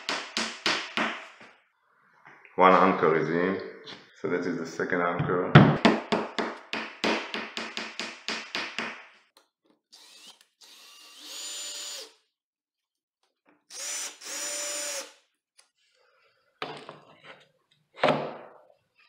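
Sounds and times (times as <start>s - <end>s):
power drill driving screws: 9.9s - 12.2s, 13.7s - 15.2s.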